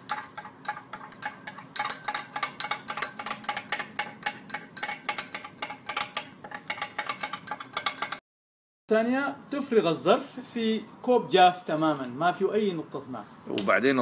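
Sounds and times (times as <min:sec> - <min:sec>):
spoon clinking in a glass: 0:00.0 - 0:06.1.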